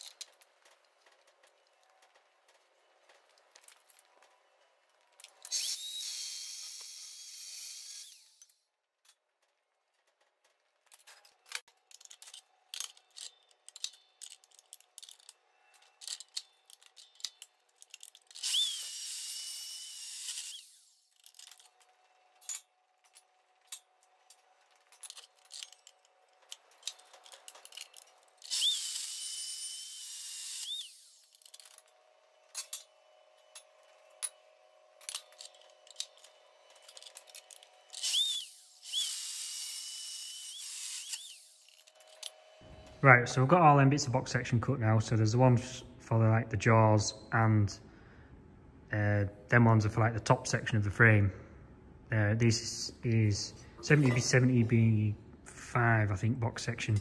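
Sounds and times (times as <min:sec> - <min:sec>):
power saw cutting steel: 0:05.4 - 0:08.6, 0:18.3 - 0:21.1, 0:26.8 - 0:43.0.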